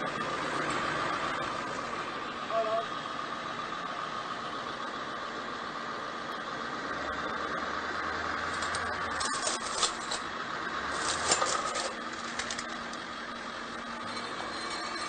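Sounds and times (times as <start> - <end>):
truck engine running: 0.0 - 15.0
sharp clicks and crackles: 8.4 - 10.3, 10.9 - 13.1
tyre rolling over metal tube: 10.9 - 13.0.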